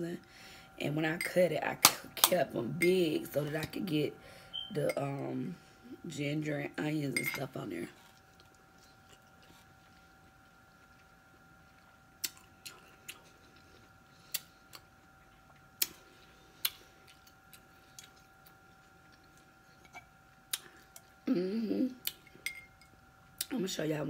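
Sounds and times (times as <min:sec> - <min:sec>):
faint steady high hum: 0:00.0 - 0:24.0
person chewing crunchy broccoli: 0:07.9 - 0:21.2.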